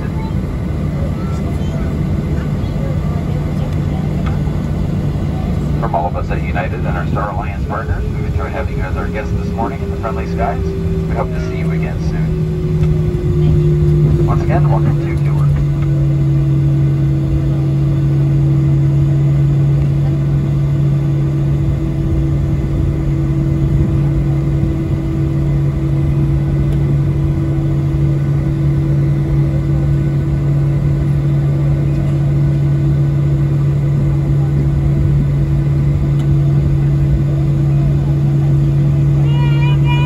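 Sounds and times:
jet engines idling: 0:00.0 - 0:40.0
cabin air rush: 0:05.5 - 0:15.8.

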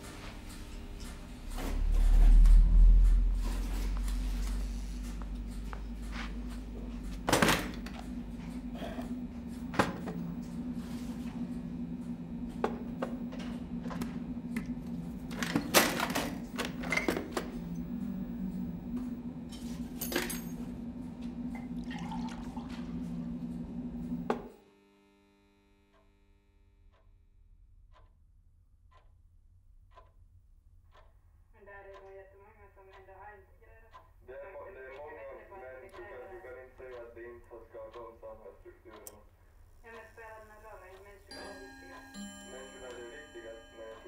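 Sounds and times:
steady low hum: 0:00.0 - 0:44.0
faint ticking: 0:30.8 - 0:44.0.

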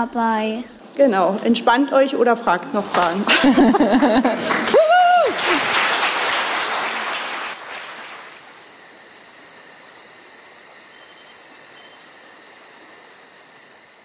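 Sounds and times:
crickets chirping: 0:00.0 - 0:14.0
applause: 0:04.2 - 0:08.7.

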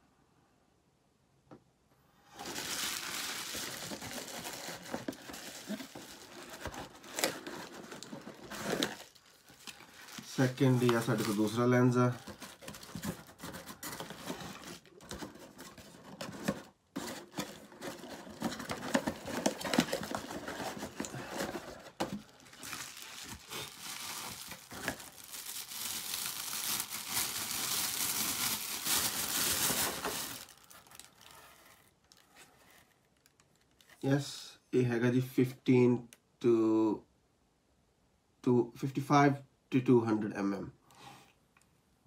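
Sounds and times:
bubble wrap crinkling: 0:02.3 - 0:34.0.

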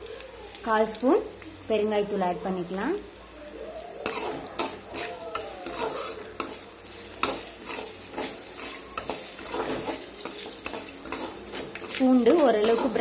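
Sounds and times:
spices sizzling in hot oil: 0:00.0 - 0:13.0
metal ladle scraping pan: 0:04.0 - 0:13.0.

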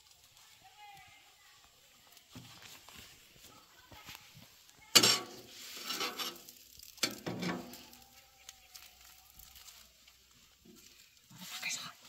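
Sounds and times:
utensil scraping and stirring pan: 0:04.3 - 0:08.9.

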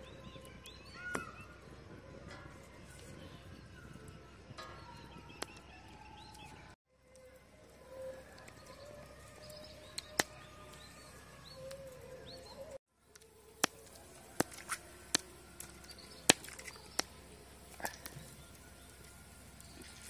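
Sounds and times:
birds chirping: 0:00.0 - 0:20.0
hot pan popping and crackling: 0:13.1 - 0:20.0.

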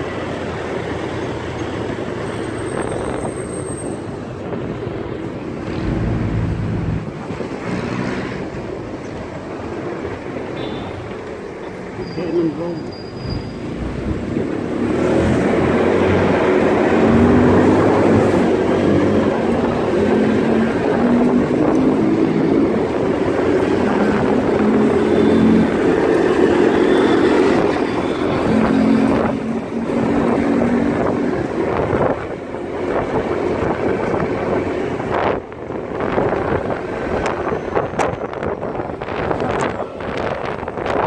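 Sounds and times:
wind rushing over microphone: 0:14.1 - 0:41.0.

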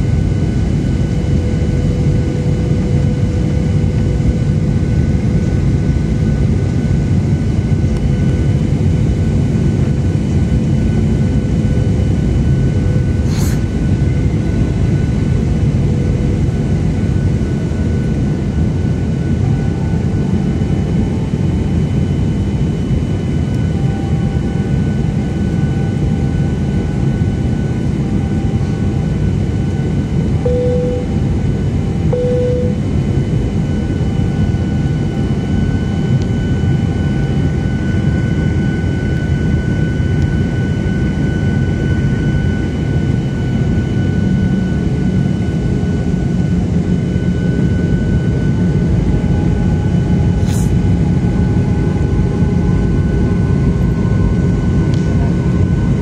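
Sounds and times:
jet engine and airflow rumble: 0:00.0 - 0:56.0
faint high tones: 0:30.4 - 0:31.4, 0:32.1 - 0:33.0
short tones: 0:30.4 - 0:31.4, 0:32.1 - 0:32.9.

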